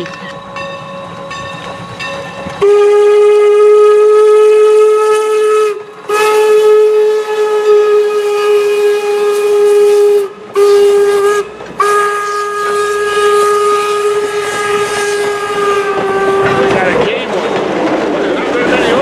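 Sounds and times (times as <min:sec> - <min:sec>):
rumble of passing train: 0:00.0 - 0:19.0
steam locomotive whistle blasts: 0:02.6 - 0:16.8.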